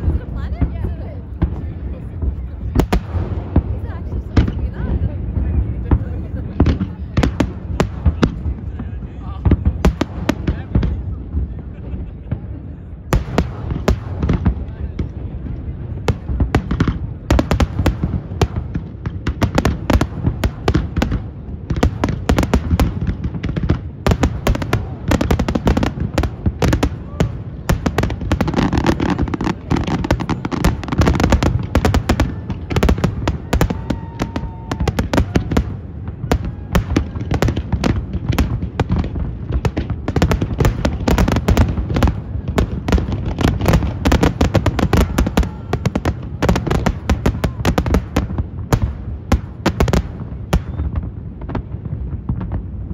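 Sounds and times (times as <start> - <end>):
fireworks bursting: 0.0 - 52.9.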